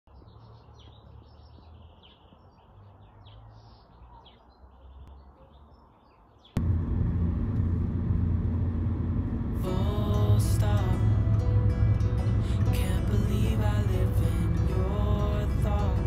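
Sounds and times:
small birds chirping: 0:00.1 - 0:06.6
car road noise: 0:06.6 - 0:16.0
faint low rumble: 0:06.6 - 0:16.0.

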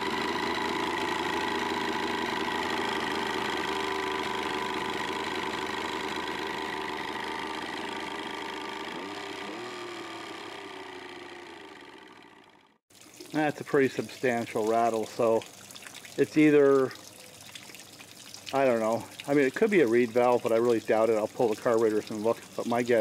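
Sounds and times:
engine internal rattle: 0:00.0 - 0:12.8
outboard motor running: 0:00.0 - 0:12.8, 0:13.4 - 0:23.0.

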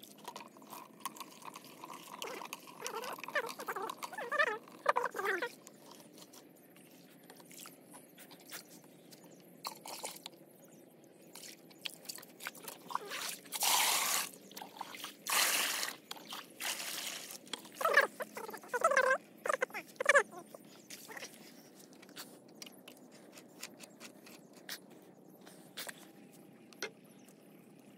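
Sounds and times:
liquid pouring into plastic drum: 0:00.0 - 0:04.1, 0:15.0 - 0:17.8
hands squelching wet mixture: 0:11.3 - 0:26.1.

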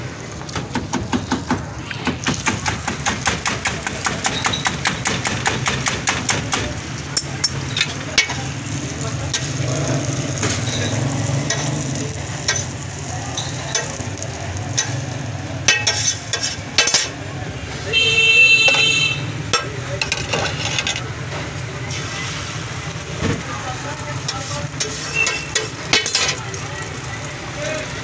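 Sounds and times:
patties sizzling in oil: 0:00.0 - 0:28.0
utensil clinking against steel bowl: 0:15.7 - 0:17.2.

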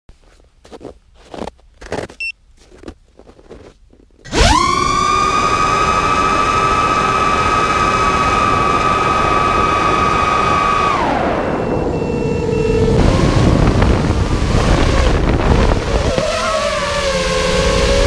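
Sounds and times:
quadcopter motors whining: 0:04.3 - 0:18.0
propeller wash rushing: 0:12.6 - 0:18.0.

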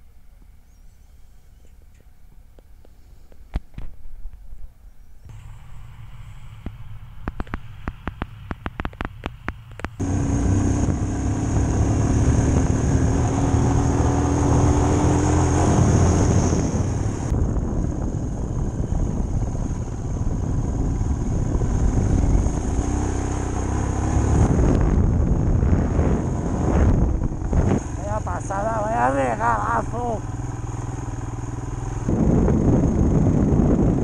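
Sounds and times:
motorcycle engine running: 0:05.3 - 0:34.0
sharp clicks: 0:06.6 - 0:10.0
wind on microphone: 0:07.2 - 0:30.3, 0:31.8 - 0:34.0.

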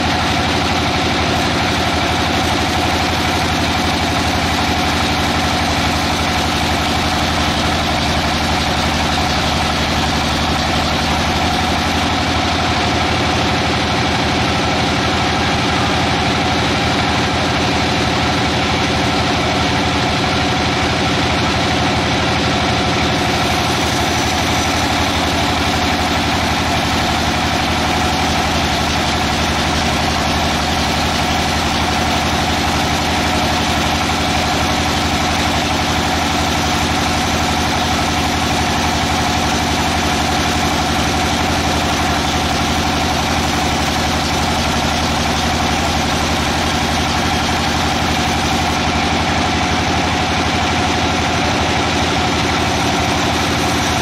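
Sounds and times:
band sawmill cutting wood: 0:22.8 - 0:54.0.

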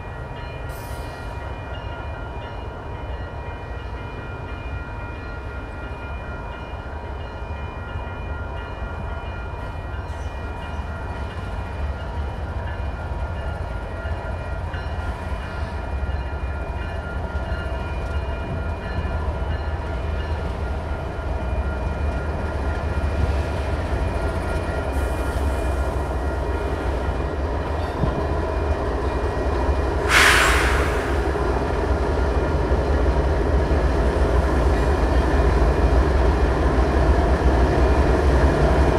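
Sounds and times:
diesel locomotives rumbling past: 0:00.0 - 0:38.9
sharp burst of hiss: 0:30.1 - 0:31.4.

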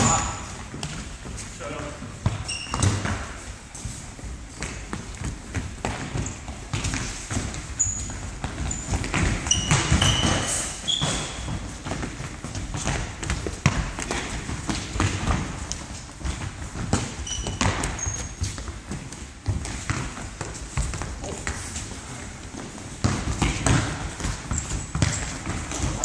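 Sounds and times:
sneaker squeaks on floor: 0:00.0 - 0:00.6, 0:02.2 - 0:03.4, 0:06.1 - 0:12.1, 0:17.0 - 0:18.8, 0:23.0 - 0:26.0
ball kicks and thuds: 0:02.2 - 0:03.4, 0:08.4 - 0:15.6, 0:16.2 - 0:21.6, 0:23.0 - 0:26.0.

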